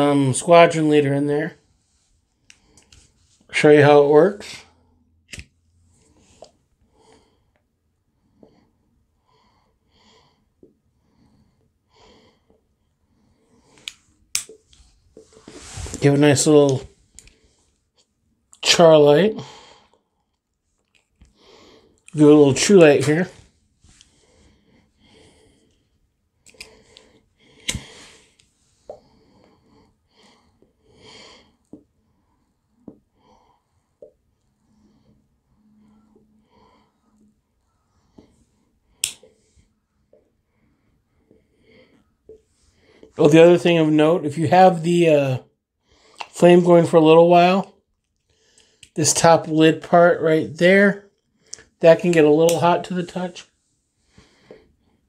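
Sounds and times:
soft puffs of pipe drawing: 0:12.5 - 0:18.2, 0:53.4 - 0:55.0
lip pops: 0:46.2 - 0:46.4.

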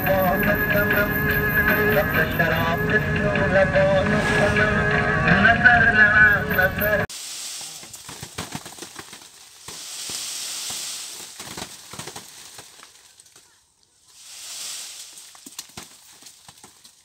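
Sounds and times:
rustling: 0:07.1 - 0:17.0
small hits on plastic tarp: 0:07.5 - 0:13.6, 0:14.4 - 0:17.0.

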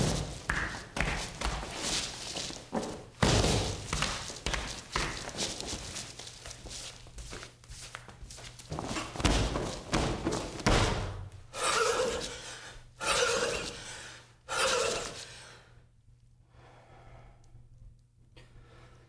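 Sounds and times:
heavy thumps: 0:02.6 - 0:05.8, 0:08.7 - 0:11.4
breathy exhalations: 0:11.5 - 0:15.7.

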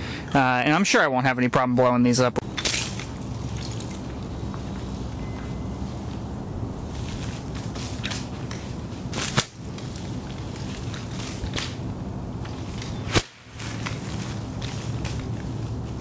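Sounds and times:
chain whip cracks: 0:02.5 - 0:04.0, 0:07.6 - 0:10.0, 0:10.7 - 0:11.8, 0:12.6 - 0:15.3.

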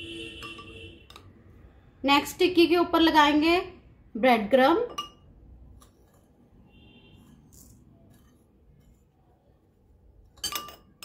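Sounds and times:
spoon and fork clinking on glass bowls: 0:04.8 - 0:06.2, 0:10.3 - 0:11.0.

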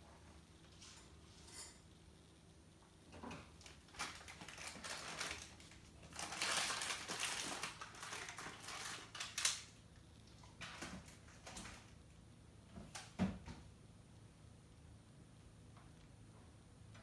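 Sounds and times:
faint rustling and crinkling: 0:00.0 - 0:13.8.

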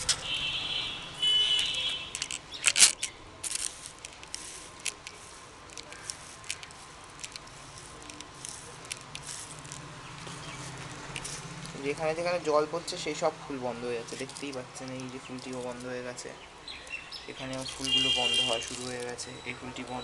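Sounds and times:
small clicks and patters: 0:01.6 - 0:12.0, 0:14.1 - 0:16.0
spray bottle hissing: 0:03.6 - 0:05.5.

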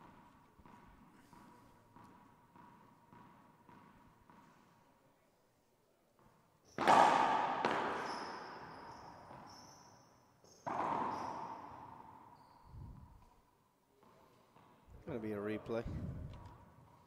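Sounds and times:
ball hitting court wall echoing: 0:06.2 - 0:09.8, 0:10.5 - 0:13.2.

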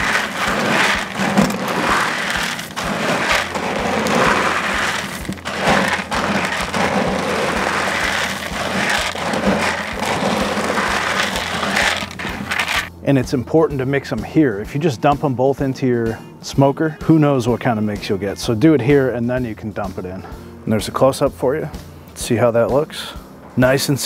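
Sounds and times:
pellets rattling in plastic bucket: 0:00.0 - 0:12.9.

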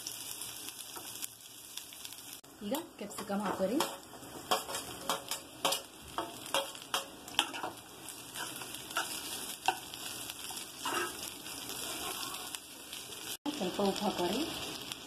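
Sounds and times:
vegetables sizzling in oil: 0:00.0 - 0:15.0
utensil clacking and scraping pan: 0:03.1 - 0:07.8, 0:08.4 - 0:11.3.

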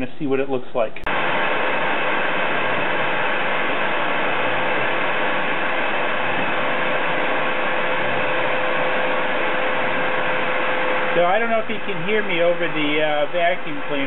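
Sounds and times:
shop vacuum running: 0:01.0 - 0:14.0.

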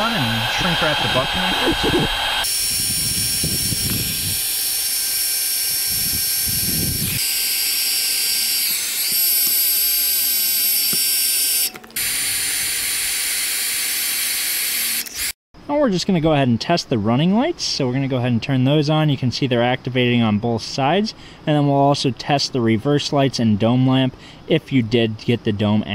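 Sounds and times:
heat gun fan whining: 0:00.0 - 0:15.4.

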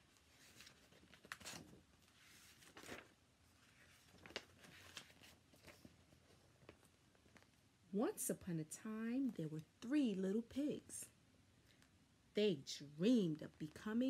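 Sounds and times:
book pages turning: 0:00.0 - 0:07.6.

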